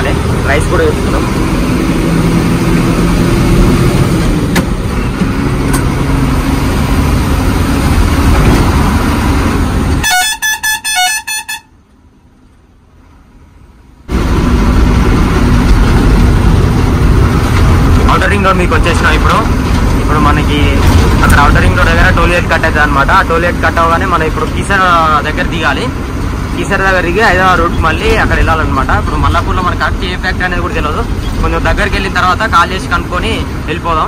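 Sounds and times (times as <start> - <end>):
truck diesel engine and road noise: 0.0 - 34.0
high horn-like toots: 10.0 - 11.8.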